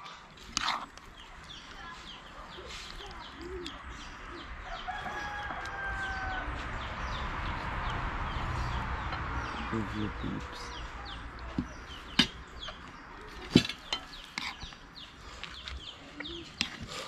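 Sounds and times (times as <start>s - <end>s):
small birds chirping: 0.0s - 17.0s
rooster crowing: 4.6s - 7.0s.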